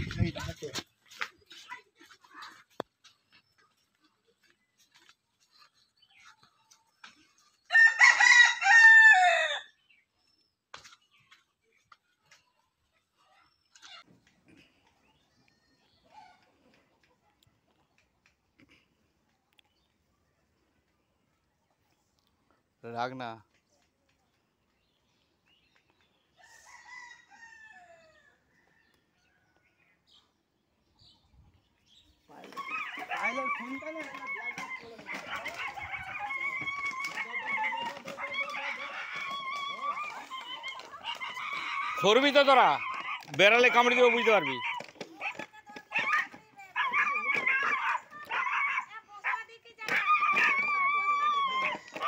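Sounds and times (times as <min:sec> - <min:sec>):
rooster crowing: 0:07.7 - 0:09.7.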